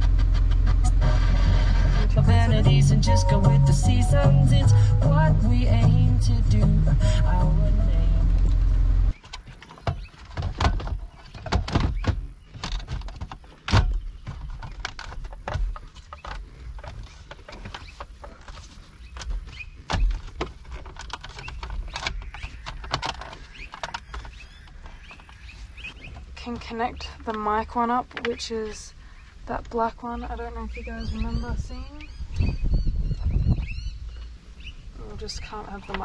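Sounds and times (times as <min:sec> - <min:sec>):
car radio music: 0:00.6 - 0:09.2
thuds: 0:09.4 - 0:18.4
plastic clicks and knocks: 0:19.2 - 0:28.4.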